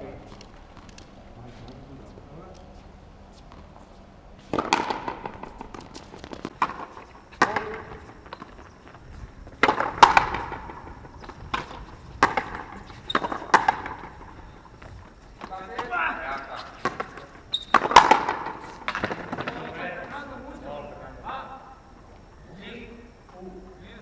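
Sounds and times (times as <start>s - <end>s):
rubber ball cracking off rackets: 4.5s - 20.2s.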